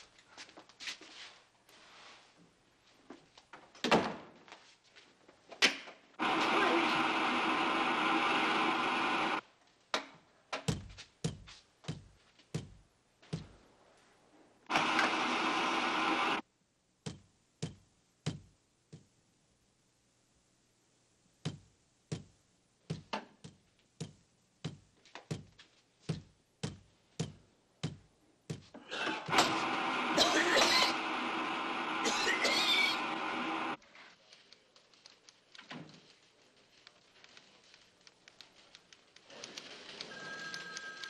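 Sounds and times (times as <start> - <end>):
steam hissing bursts: 29.2 - 33.8.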